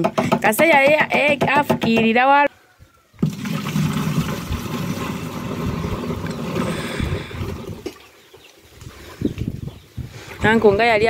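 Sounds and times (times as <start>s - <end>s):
water pouring into plastic tank: 3.2s - 8.0s.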